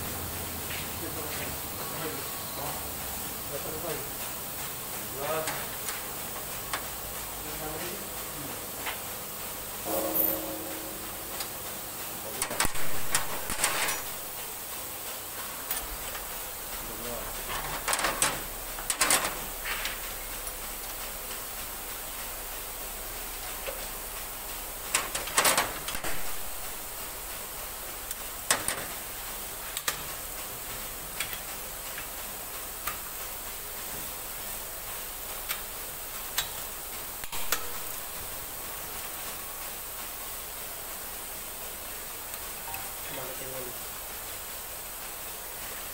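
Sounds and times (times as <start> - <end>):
steady hiss: 0.0 - 45.9
hand tools clinking on metal: 9.9 - 10.6.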